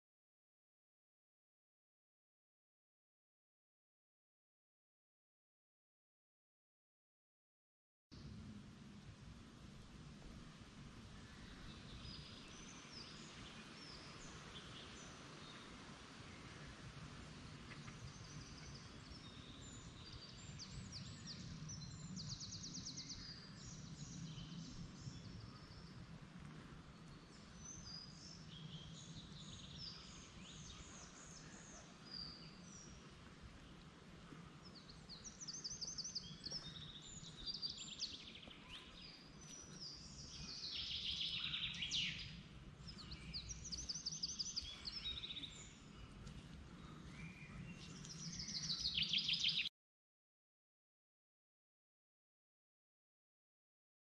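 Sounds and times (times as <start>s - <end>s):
songbirds singing and trilling: 11.0s - 49.7s.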